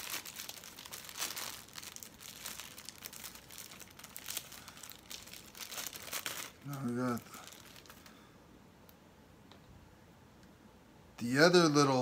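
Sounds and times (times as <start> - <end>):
plastic packaging crinkling: 0.0 - 8.2.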